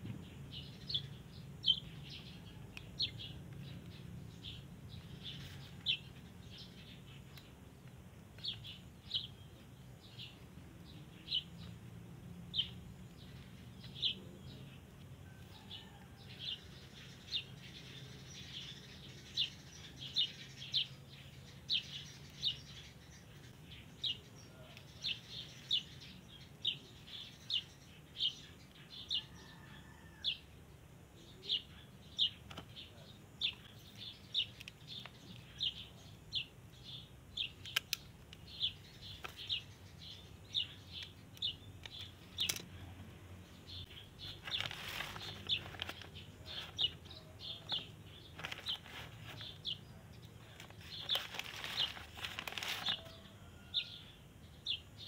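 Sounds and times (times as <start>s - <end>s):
bird chirping: 0.0s - 55.0s
rustling: 44.1s - 49.8s, 50.4s - 53.3s.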